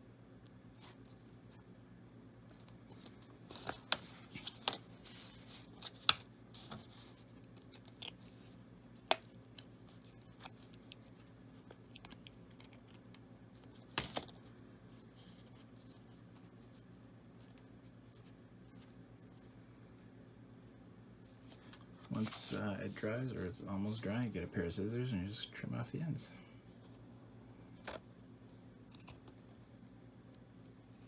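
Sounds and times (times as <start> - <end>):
faint steady hum: 0.0 - 31.0
clicks and rustles of handling objects: 2.4 - 23.3.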